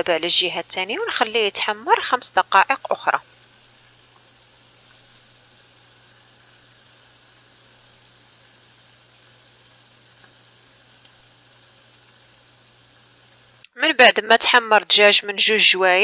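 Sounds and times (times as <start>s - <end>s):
chicken sizzling in oil: 0.0s - 13.6s
oil popping: 0.0s - 13.6s.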